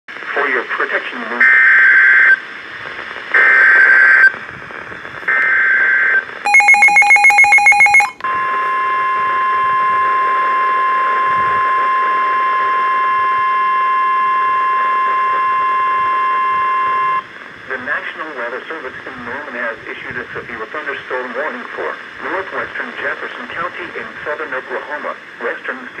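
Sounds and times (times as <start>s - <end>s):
rapid beeping: 6.5s - 8.2s
steady alarm tone: 6.5s - 17.2s.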